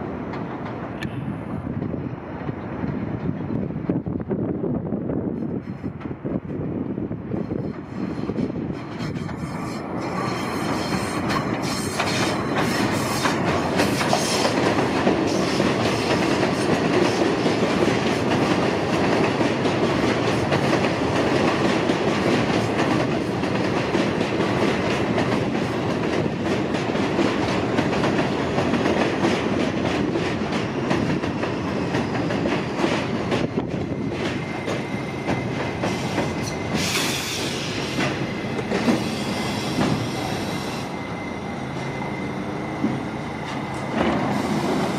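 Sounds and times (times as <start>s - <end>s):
train wheels rumbling on rail: 0.0s - 44.9s
high brake squeal: 35.9s - 43.4s, 44.3s - 44.9s.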